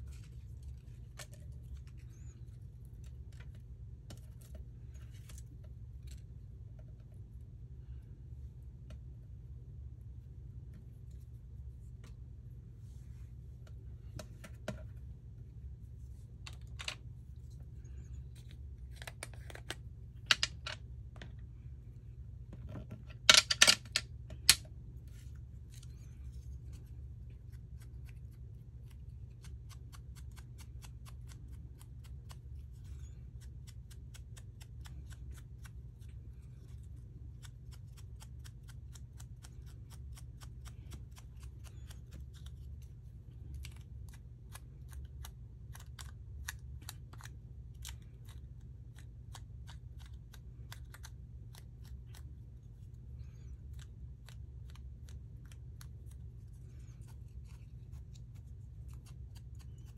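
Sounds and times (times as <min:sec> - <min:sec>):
scissors snipping paper: 0:27.5 - 0:59.9.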